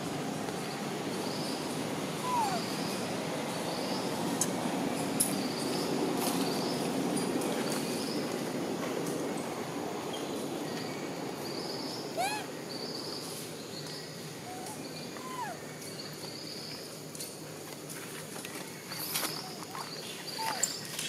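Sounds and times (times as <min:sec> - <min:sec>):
outdoor background noise: 0:00.0 - 0:21.0
monkey squealing calls: 0:02.2 - 0:03.0, 0:12.2 - 0:12.5, 0:14.4 - 0:15.6, 0:19.5 - 0:20.8.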